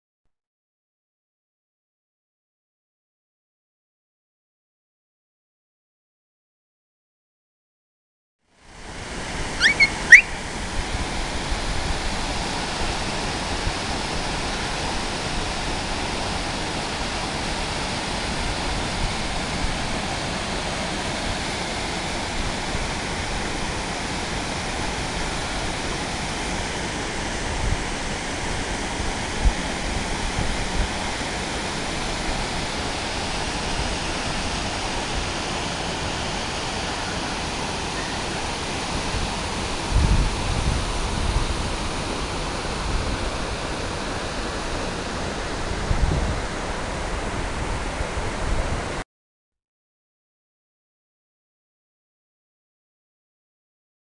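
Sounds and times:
waterfall rushing: 0:08.9 - 0:49.0
sharp rising chirps: 0:09.6 - 0:10.4.

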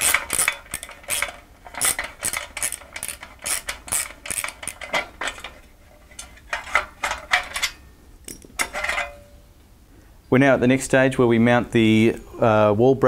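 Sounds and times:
metal arm clinking and scraping: 0:00.0 - 0:09.4.

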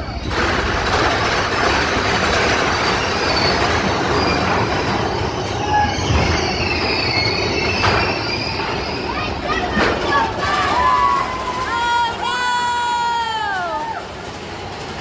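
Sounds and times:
coaster cars rumbling on track: 0:00.0 - 0:15.0
high wheel squeals: 0:02.7 - 0:11.7.

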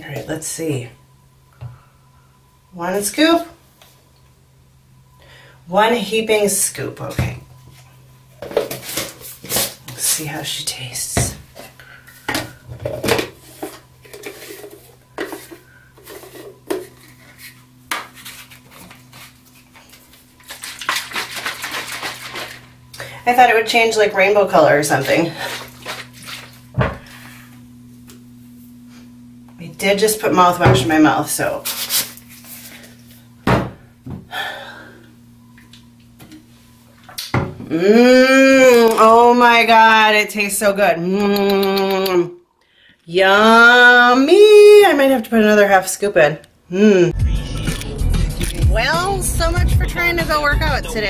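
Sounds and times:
steady low hum: 0:00.0 - 0:39.4, 0:46.6 - 0:51.0
shaker bottle rattling: 0:20.5 - 0:22.7.

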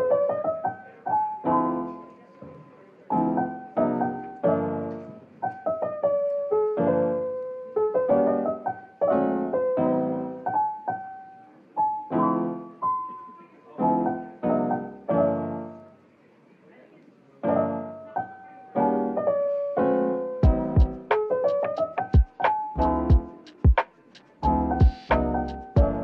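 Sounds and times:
piano music: 0:00.0 - 0:16.0, 0:17.4 - 0:26.0.

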